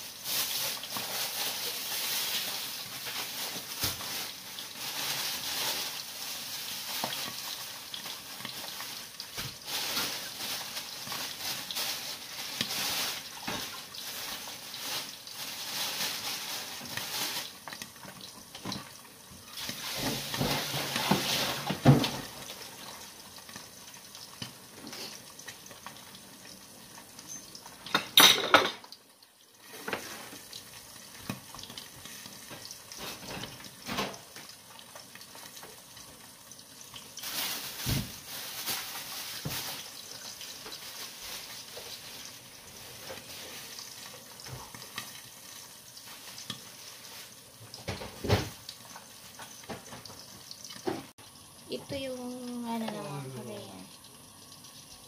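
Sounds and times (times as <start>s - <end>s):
tap water running into sink: 16.1s - 38.3s, 39.0s - 55.0s
dishes and utensils clattering: 19.6s - 22.4s, 27.2s - 28.9s.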